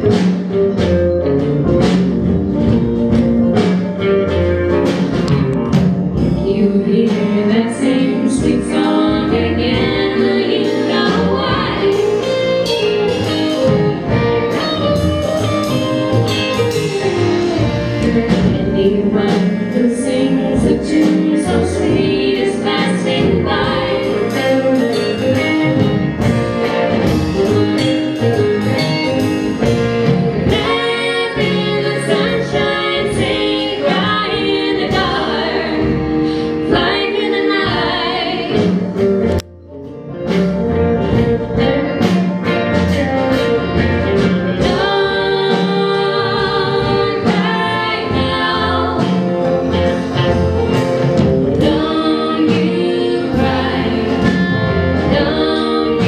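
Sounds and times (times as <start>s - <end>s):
string band music: 0.0s - 56.0s
women singing in harmony: 6.4s - 12.4s, 18.5s - 25.5s, 30.4s - 39.0s, 44.5s - 50.4s, 51.4s - 56.0s.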